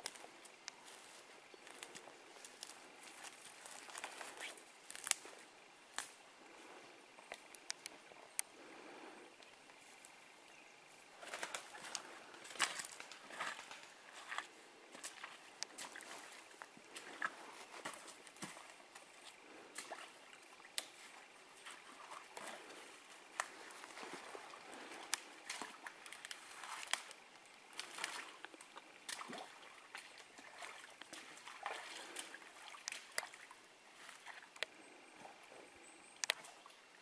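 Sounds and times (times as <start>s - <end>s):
water sloshing around footsteps: 0.0s - 5.5s, 10.9s - 35.5s
twigs snapping underfoot: 0.0s - 6.2s, 7.2s - 8.5s, 11.2s - 20.1s, 20.7s - 29.5s, 36.2s - 36.6s.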